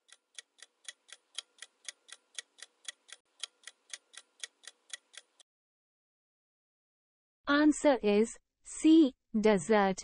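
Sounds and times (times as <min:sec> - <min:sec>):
clock ticking: 0:00.0 - 0:05.4.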